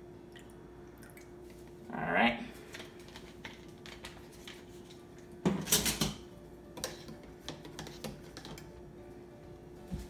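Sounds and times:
faint steady hum: 0.0s - 10.0s
kitchenware clicks and knocks: 5.4s - 8.7s.

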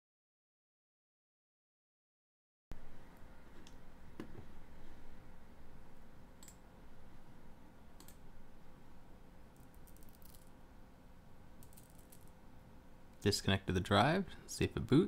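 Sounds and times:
faint steady hum: 2.7s - 15.0s
computer mouse clicking: 6.4s - 6.6s, 8.0s - 8.2s.

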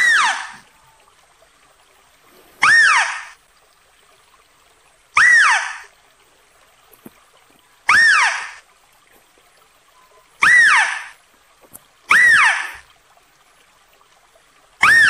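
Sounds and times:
mouse-deer calling: 2.6s - 3.3s, 5.2s - 5.9s, 7.9s - 8.6s, 10.4s - 11.2s, 12.1s - 12.8s.

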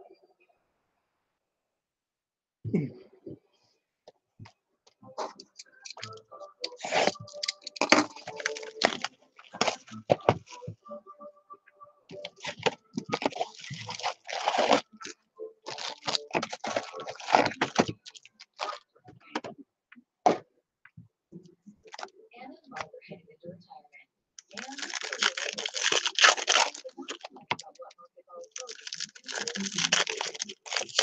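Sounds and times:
card packs crinkling and rustling: 6.7s - 10.5s, 12.2s - 15.1s, 15.7s - 18.8s, 24.4s - 27.6s, 28.5s - 31.0s.

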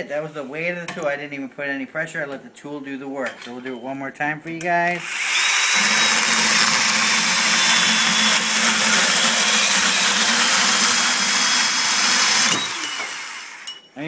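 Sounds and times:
band saw cutting metal tube: 5.0s - 13.8s.

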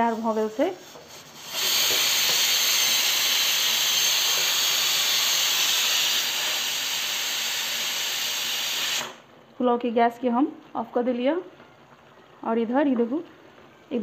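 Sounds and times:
pressure cooker whistle hissing: 0.0s - 9.2s.

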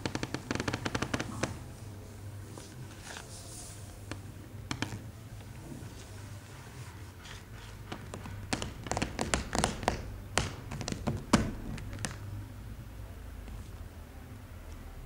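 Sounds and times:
fingertips tapping on floor: 0.0s - 1.6s, 4.1s - 5.1s, 7.3s - 12.3s
steady low hum: 0.0s - 15.0s.

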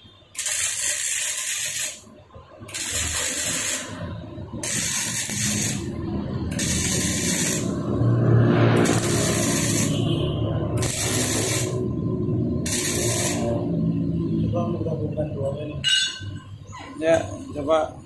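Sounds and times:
welding arc crackling hiss: 0.4s - 2.1s, 2.7s - 7.9s, 8.8s - 10.1s, 10.8s - 11.8s, 12.7s - 13.6s.

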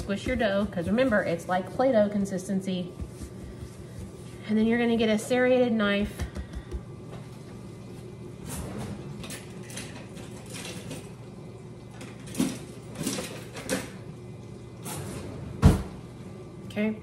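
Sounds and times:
kitchen utensils clinking: 8.5s - 11.2s, 12.0s - 14.0s.

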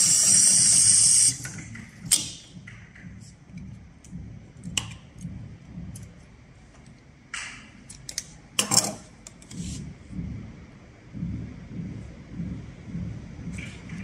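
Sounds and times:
low uneven rumble: 9.6s - 14.0s.

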